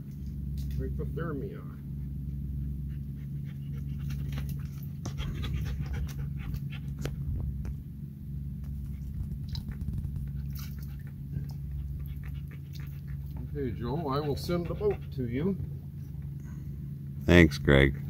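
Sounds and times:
steady low hum: 0.0 - 18.0
dog panting: 1.6 - 7.3, 8.8 - 16.4.

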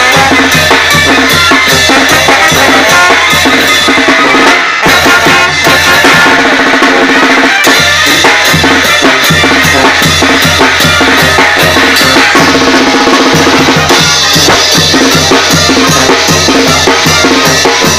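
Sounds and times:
cymbals: 0.0 - 17.9
bass drum beat: 7.7 - 17.9.

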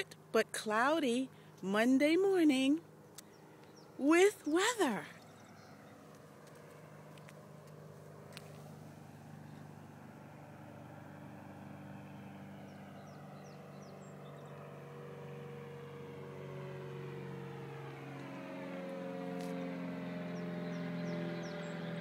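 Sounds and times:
aircraft engine drone: 0.0 - 22.0.

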